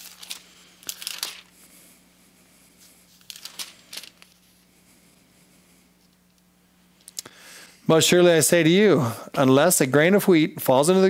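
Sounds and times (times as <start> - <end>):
pages rustling: 0.0 - 1.5, 3.1 - 4.7
faint steady hum: 0.0 - 11.0.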